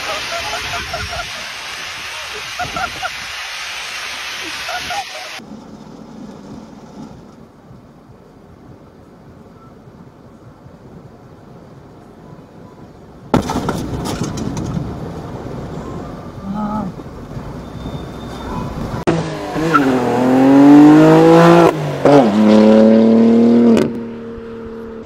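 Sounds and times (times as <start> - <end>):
loud bang inside car: 13.3 - 14.7
car engine revving: 19.0 - 25.0.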